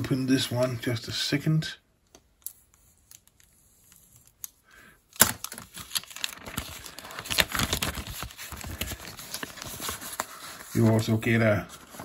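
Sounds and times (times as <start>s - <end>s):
plastic bag crinkling: 5.2s - 10.8s.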